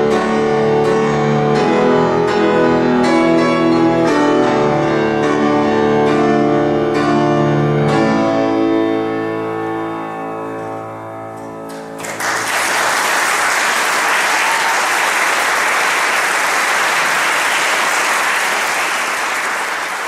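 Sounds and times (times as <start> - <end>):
audience applause: 11.7 - 20.0.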